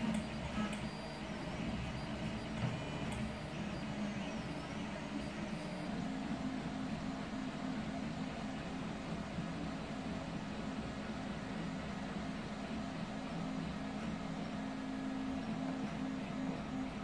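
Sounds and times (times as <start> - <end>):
stepper motors humming: 0.0 - 7.3.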